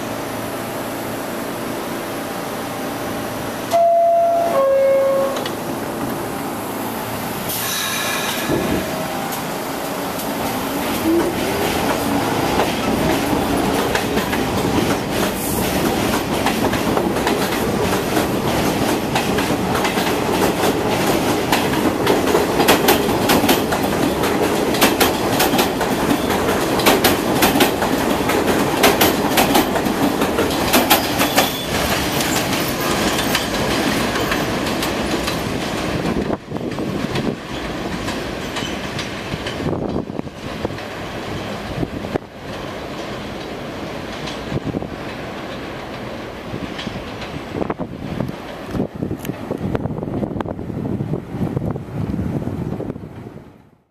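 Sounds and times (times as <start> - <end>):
subway train whine: 0.0 - 53.9
train wheels clattering over rail joints: 10.2 - 50.4.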